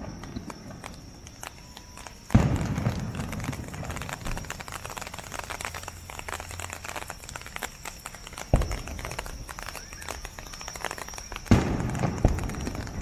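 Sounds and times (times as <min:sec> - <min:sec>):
firework crackling: 0:00.0 - 0:13.0
firework shell booming: 0:02.3 - 0:04.4, 0:11.5 - 0:13.0.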